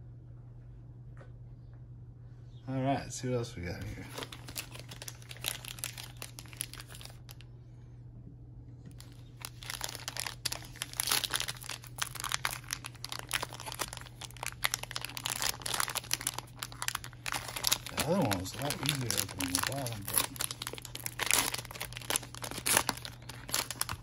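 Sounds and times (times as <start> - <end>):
plastic foil wrapper crinkling: 3.8 - 7.4, 8.9 - 24.0.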